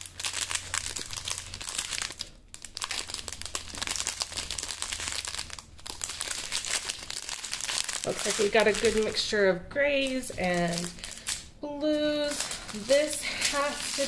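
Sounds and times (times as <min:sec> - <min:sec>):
plastic packets crinkling: 0:00.0 - 0:14.0.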